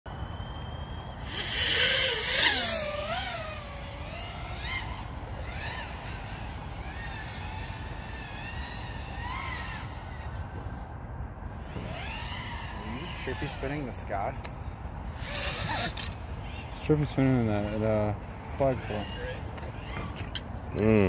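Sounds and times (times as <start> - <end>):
quadcopter motors whining: 0.1 - 21.0.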